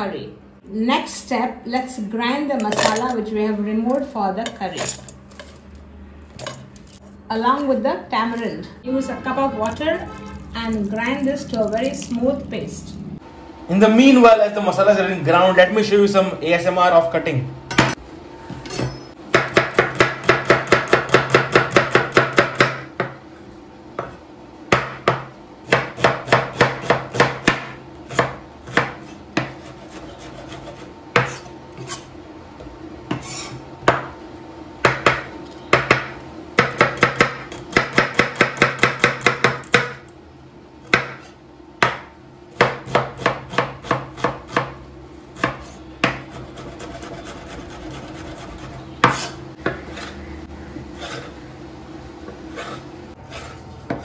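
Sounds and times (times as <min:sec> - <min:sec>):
knife chopping onions on board: 0:19.3 - 0:23.2, 0:24.0 - 0:32.0, 0:34.8 - 0:40.0, 0:40.8 - 0:44.8, 0:45.4 - 0:50.2, 0:52.3 - 0:54.0.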